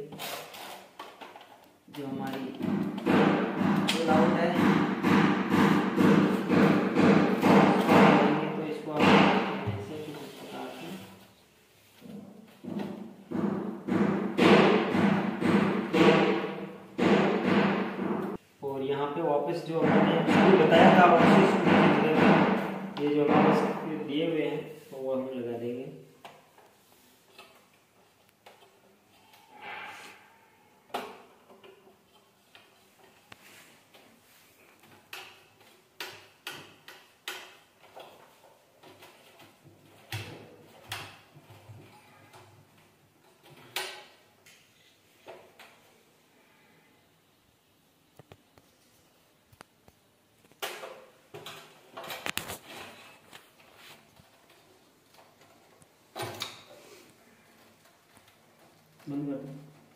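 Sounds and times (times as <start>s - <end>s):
short scraping: 29.3s - 30.6s.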